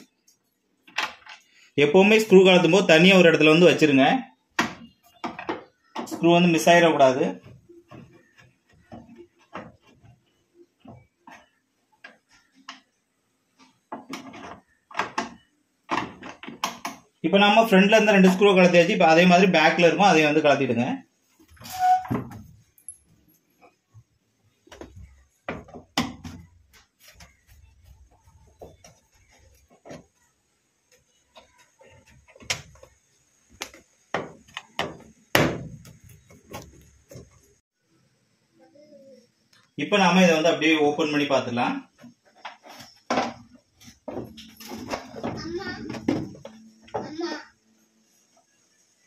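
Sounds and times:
knocks on plastic cabinet: 34.1 - 36.6.

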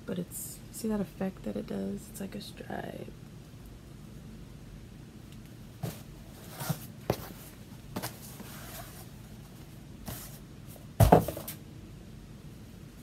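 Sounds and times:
fabric and packaging rustling: 5.8 - 11.5.

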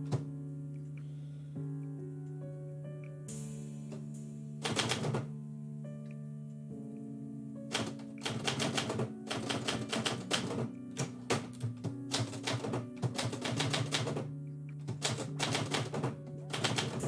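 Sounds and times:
instrumental music: 0.0 - 17.0
typewriter carriage return: 4.6 - 5.3, 7.7 - 17.0
typewriter keystrokes: 4.6 - 5.3, 7.7 - 17.0.

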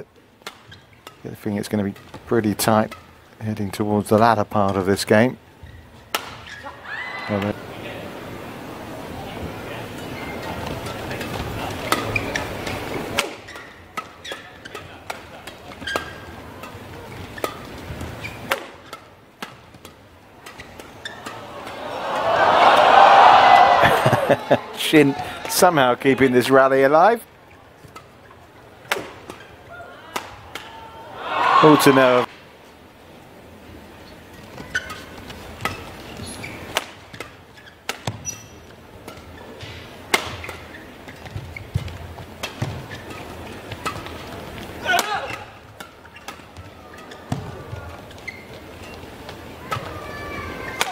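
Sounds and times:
rackets striking shuttlecock: 6.1 - 6.4, 10.6 - 16.8, 18.4 - 21.8, 28.9 - 29.4, 36.7 - 38.3.

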